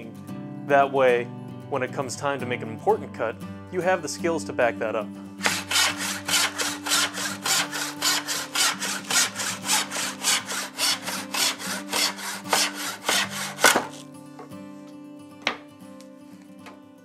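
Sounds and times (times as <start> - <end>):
handsaw cutting wood: 5.4 - 14.0.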